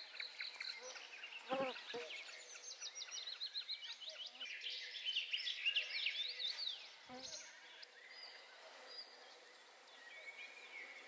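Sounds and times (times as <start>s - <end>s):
songbirds singing: 0.0s - 11.0s.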